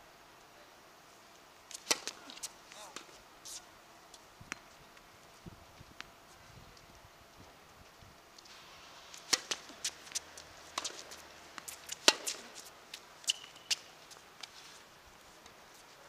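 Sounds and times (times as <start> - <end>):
tennis ball hits and bounces: 1.7 - 3.1, 9.1 - 14.5.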